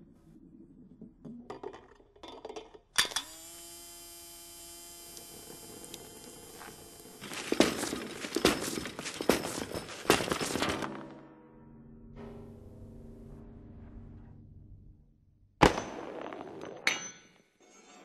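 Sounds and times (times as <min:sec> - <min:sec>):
dense metallic clattering: 0:07.2 - 0:10.9.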